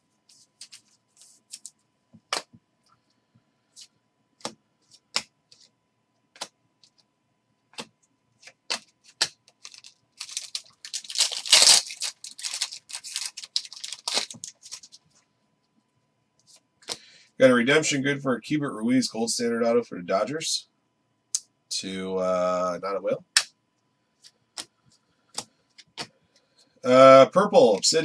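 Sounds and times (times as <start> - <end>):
cards rustling: 0.3 - 1.7, 7.8 - 15.0
cards clicking and snapping: 7.8 - 14.8.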